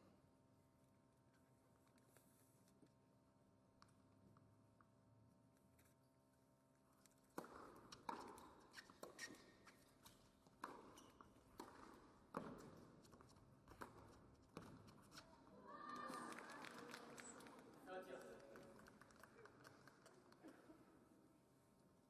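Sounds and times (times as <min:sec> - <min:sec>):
tennis ball bouncing: 0:07.4 - 0:09.4, 0:10.0 - 0:15.0.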